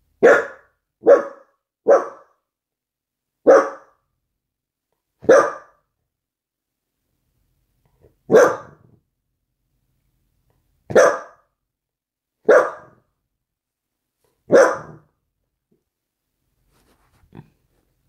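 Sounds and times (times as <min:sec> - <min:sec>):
dog barking: 0:00.2 - 0:02.4, 0:03.4 - 0:04.0, 0:05.2 - 0:05.9, 0:08.3 - 0:08.9, 0:10.9 - 0:11.5, 0:12.4 - 0:13.0, 0:14.5 - 0:15.2.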